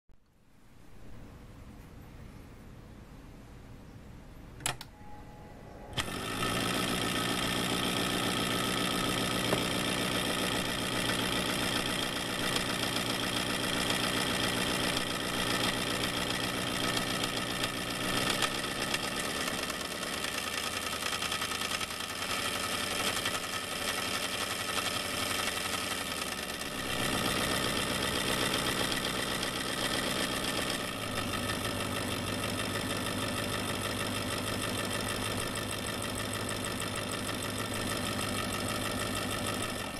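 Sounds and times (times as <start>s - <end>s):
power switch click: 4.6s - 5.0s
toy electric motor running: 6.0s - 39.9s.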